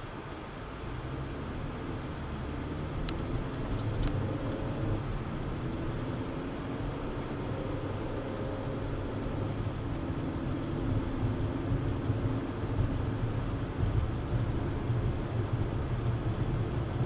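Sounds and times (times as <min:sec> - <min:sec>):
car interior engine and road rumble: 0:00.0 - 0:17.0
small ticks: 0:03.0 - 0:04.7.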